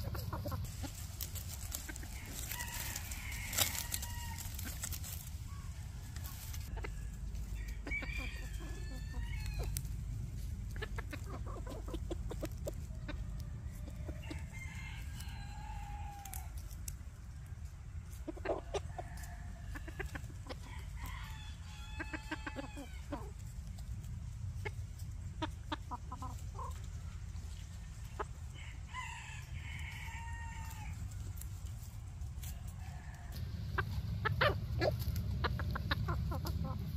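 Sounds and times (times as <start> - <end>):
rooster clucking: 0.0 - 16.5, 18.1 - 23.8, 24.5 - 27.2, 32.6 - 36.9
rooster crowing: 1.9 - 9.9, 13.4 - 16.6, 18.7 - 23.1, 28.5 - 31.0, 32.5 - 33.9.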